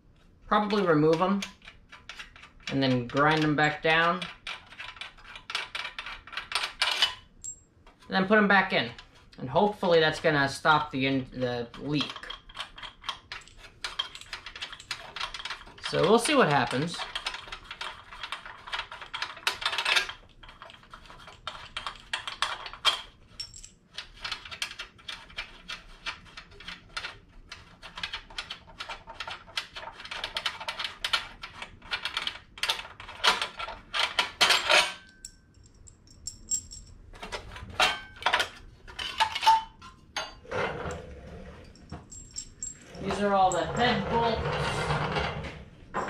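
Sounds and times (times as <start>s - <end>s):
metal clinks of bolts and tools: 2.4s - 8.1s, 11.7s - 17.5s, 21.5s - 24.4s, 32.1s - 40.4s, 41.7s - 44.3s.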